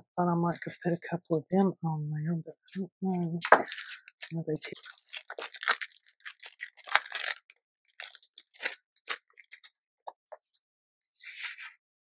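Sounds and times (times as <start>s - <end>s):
plastic bag crinkling: 3.4s - 9.7s.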